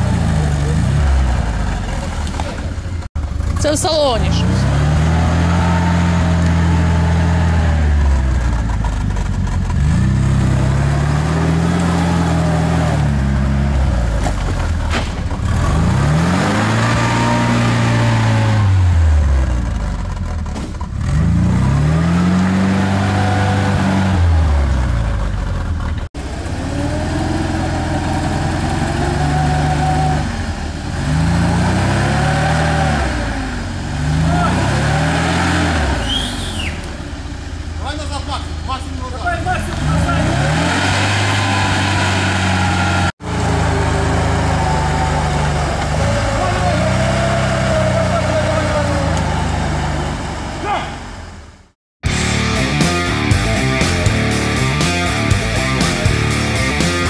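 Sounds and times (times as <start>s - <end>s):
wheels spinning in mud: 0.0s - 18.4s, 39.0s - 50.7s
engine revving: 0.0s - 57.0s.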